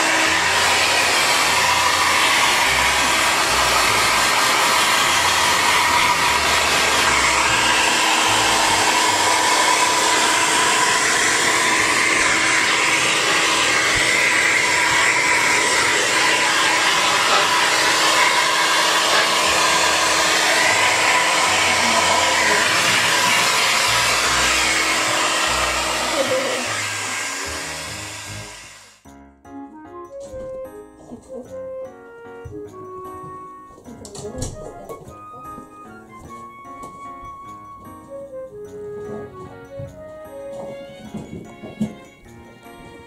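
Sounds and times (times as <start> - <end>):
hair dryer blowing: 0.0 - 29.0, 34.3 - 43.0.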